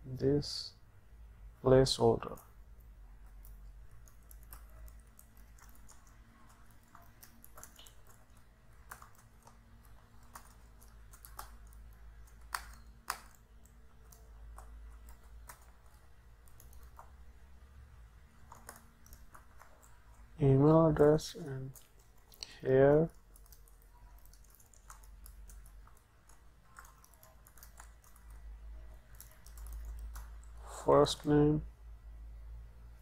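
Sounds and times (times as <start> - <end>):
low steady hum: 0.0 - 33.0
computer keyboard typing: 3.2 - 17.4, 18.3 - 20.4, 21.0 - 30.6.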